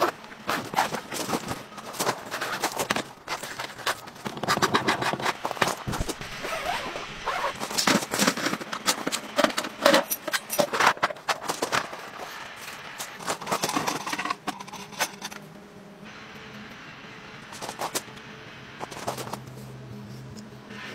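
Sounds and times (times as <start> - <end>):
camping gear clicking and rattling: 0.0 - 15.4.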